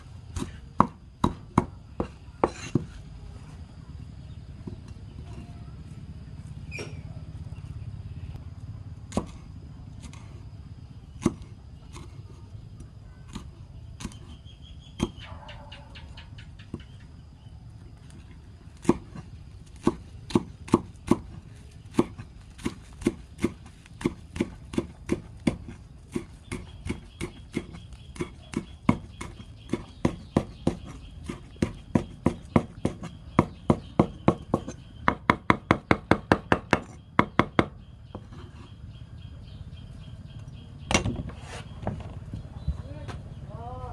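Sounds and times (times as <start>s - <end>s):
cleaver chopping on wooden board: 0.3s - 2.9s, 9.1s - 9.4s, 11.2s - 12.1s, 13.3s - 14.4s, 15.0s - 15.2s, 18.8s - 19.2s, 19.8s - 38.4s.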